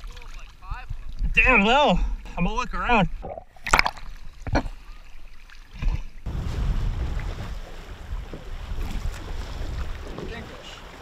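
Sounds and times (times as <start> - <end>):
sea water sloshing: 3.2 - 11.0
wind on microphone: 6.2 - 11.0.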